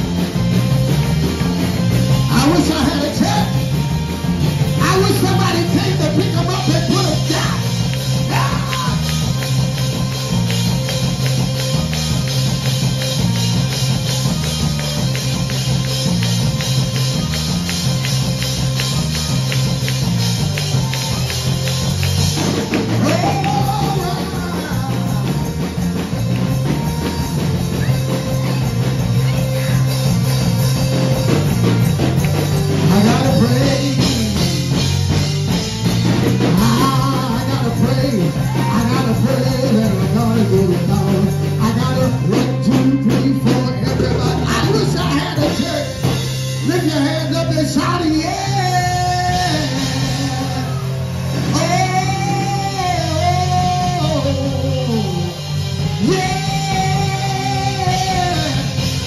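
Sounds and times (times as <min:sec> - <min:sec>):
live band playing upbeat song: 0:00.0 - 0:59.0
person's voice: 0:02.2 - 0:03.7, 0:04.7 - 0:09.1, 0:22.9 - 0:25.7.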